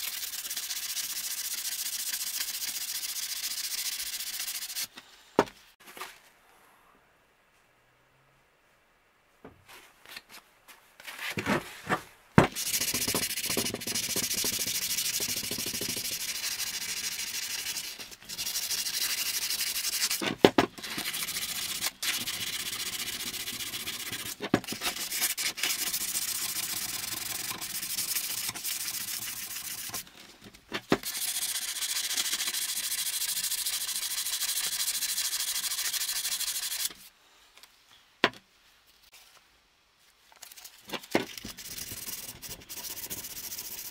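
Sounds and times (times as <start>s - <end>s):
hand sanding with sandpaper: 0.0s - 4.9s, 12.5s - 20.2s, 20.8s - 30.0s, 31.0s - 37.1s, 40.4s - 43.9s.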